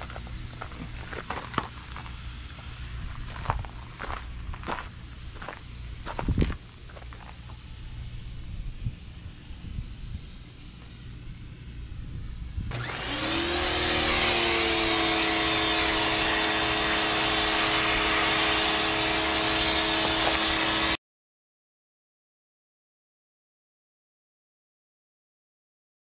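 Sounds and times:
pressure washer motor running: 12.7 - 21.0.

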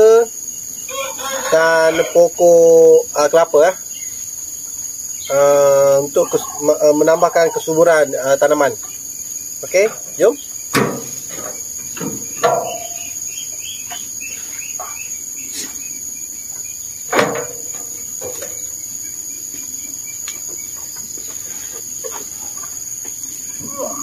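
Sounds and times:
high insect drone: 0.0 - 24.0
load landing in wheelbarrow: 10.7 - 13.0, 17.1 - 18.7.

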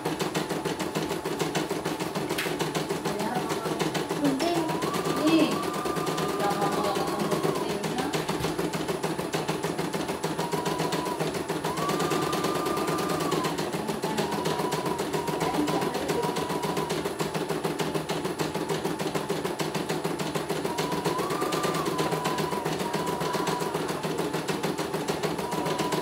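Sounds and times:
embroidery machine needle clatter: 0.0 - 26.0
motor whine: 3.6 - 17.7, 19.9 - 26.0.

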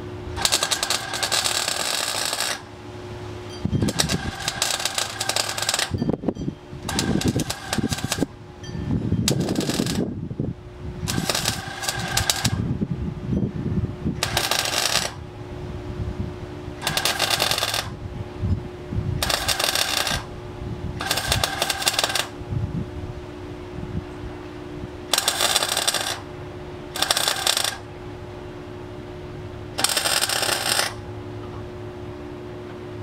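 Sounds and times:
low hum: 0.0 - 33.0
arc welding crackling: 0.4 - 2.7, 3.8 - 6.0, 6.8 - 8.3, 9.3 - 10.2, 11.0 - 12.7, 14.2 - 15.2, 16.8 - 18.0, 19.2 - 20.3, 21.0 - 22.4, 25.1 - 26.3, 27.0 - 27.9, 29.8 - 31.0.

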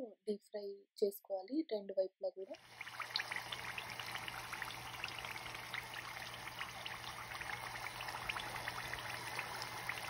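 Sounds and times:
dough deep-frying in hot oil: 2.6 - 10.0.

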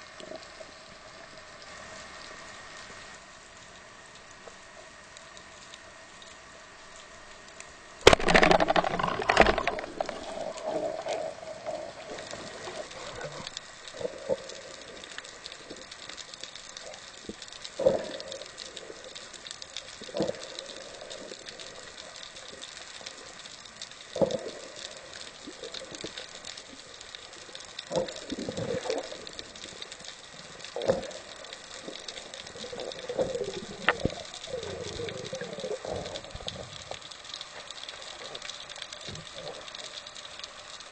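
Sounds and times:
clattering rush underwater: 8.0 - 13.5
watery hiss: 9.0 - 40.9.

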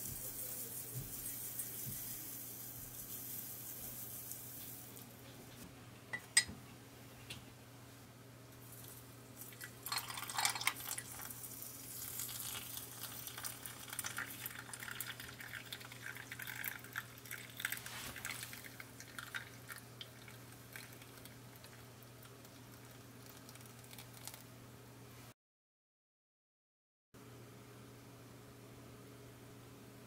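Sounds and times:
water pouring into mug: 9.4 - 24.4.

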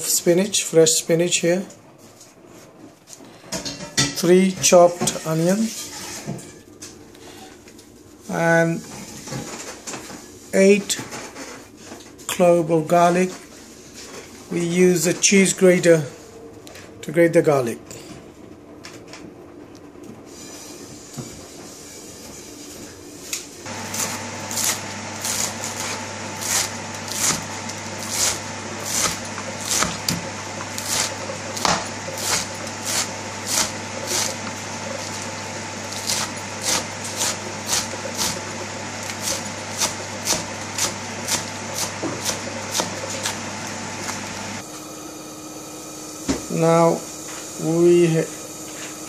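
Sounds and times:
knife chopping on wooden board: 23.7 - 34.6, 36.0 - 38.4, 39.1 - 43.4.

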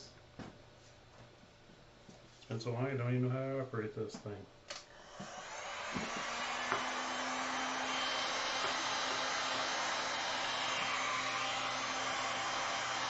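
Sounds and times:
heat gun air hiss: 4.9 - 13.0.

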